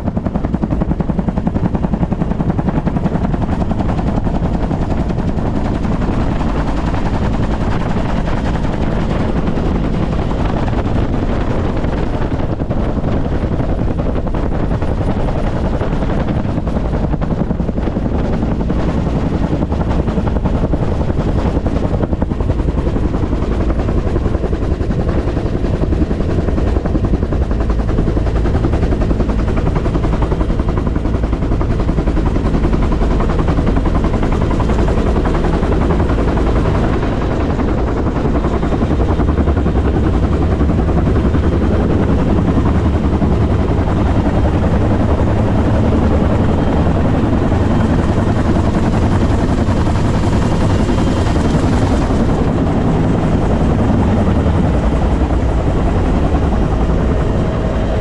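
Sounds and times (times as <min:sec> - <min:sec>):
helicopter rotor beating: 0:00.0 - 0:58.0.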